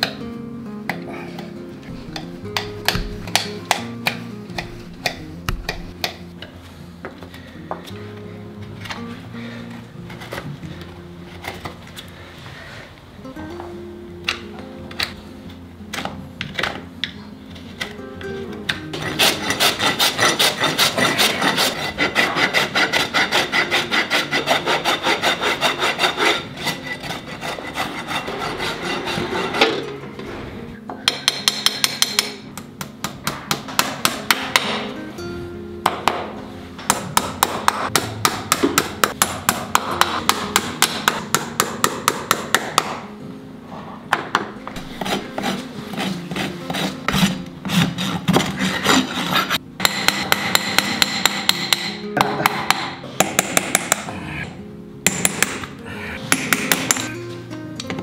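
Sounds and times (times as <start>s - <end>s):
hammer tapping horseshoe nails: 2.1s - 6.2s, 30.9s - 34.9s, 35.8s - 43.0s, 47.8s - 54.1s, 55.0s - 55.7s, 56.3s - 57.1s.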